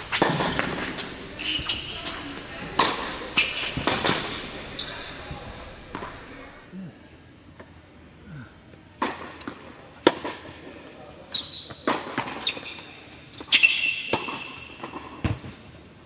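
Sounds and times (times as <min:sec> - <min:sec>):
shoe squeaks: 0:00.0 - 0:02.4, 0:03.4 - 0:05.3, 0:11.3 - 0:14.8
tennis ball hits and bounces: 0:00.0 - 0:04.7, 0:13.4 - 0:15.5.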